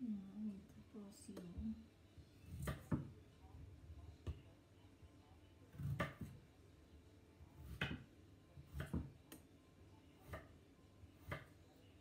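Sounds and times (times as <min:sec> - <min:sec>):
knife cutting on wooden board: 0:05.7 - 0:06.4.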